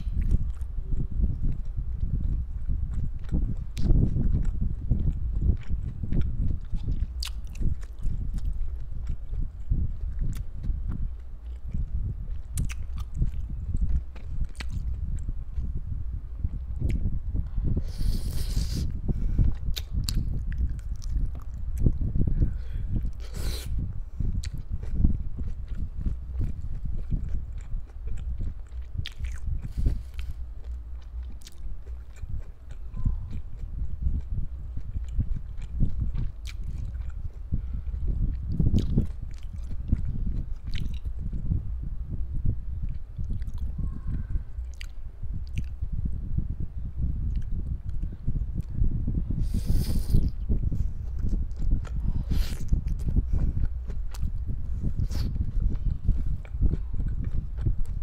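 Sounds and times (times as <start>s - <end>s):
close chewing thuds: 0.0s - 15.7s, 22.9s - 41.4s, 49.5s - 58.0s
sharp mouth clicks: 12.5s - 15.3s, 17.8s - 22.0s, 47.2s - 58.0s
wet mouth clicks and smacks: 12.5s - 15.7s, 18.0s - 22.0s, 34.1s - 41.1s, 44.6s - 45.8s.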